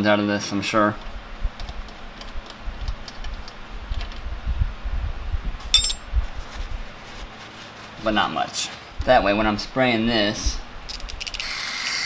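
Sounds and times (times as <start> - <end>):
handling bumps: 5.6 - 6.7
metallic clink: 5.7 - 6.0.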